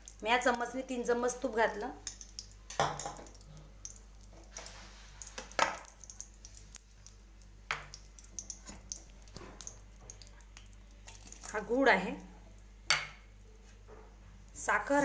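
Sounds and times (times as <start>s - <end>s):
ghee crackling in a pan: 0.0s - 15.0s.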